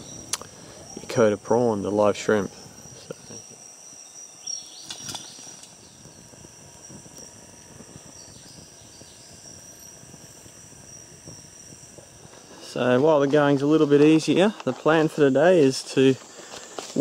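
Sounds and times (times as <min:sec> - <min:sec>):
high insect drone: 0:00.0 - 0:17.0.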